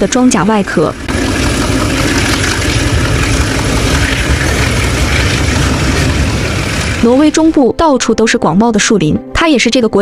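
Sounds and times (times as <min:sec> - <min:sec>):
freight train rumbling past: 0:00.0 - 0:08.2.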